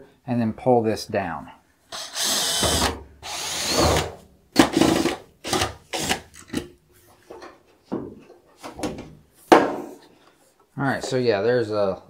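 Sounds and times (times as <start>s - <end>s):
cordless drill spinning: 1.9s - 4.1s, 4.7s - 6.3s.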